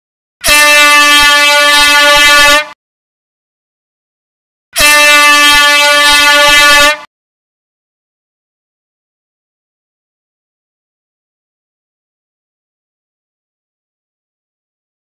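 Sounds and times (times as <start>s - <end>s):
air horn blasts: 0.4s - 2.8s, 4.8s - 7.1s.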